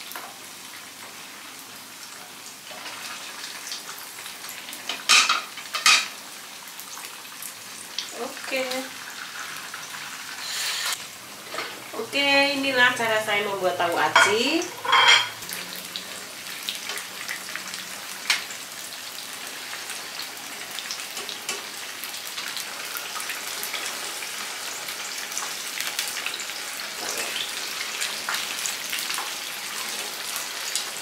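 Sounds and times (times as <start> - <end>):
tofu deep-frying in hot oil: 0.0 - 13.2, 14.0 - 31.0.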